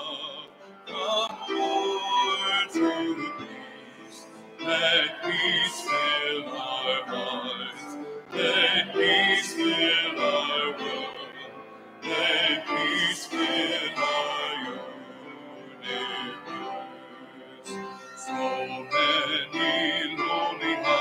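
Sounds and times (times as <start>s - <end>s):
hymn singing: 0.0s - 21.0s.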